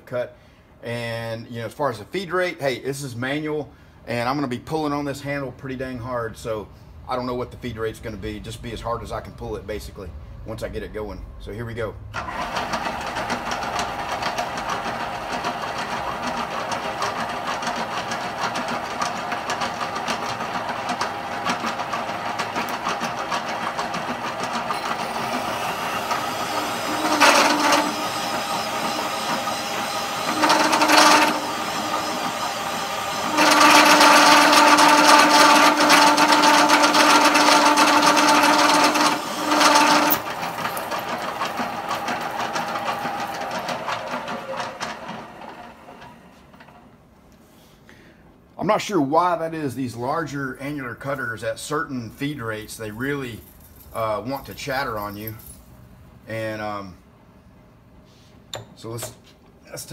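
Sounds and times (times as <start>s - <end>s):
cutter cutting steel plate: 12.2s - 46.7s
milling machine spindle running: 12.2s - 46.9s
loud ringing cutter chatter: 19.7s - 45.6s.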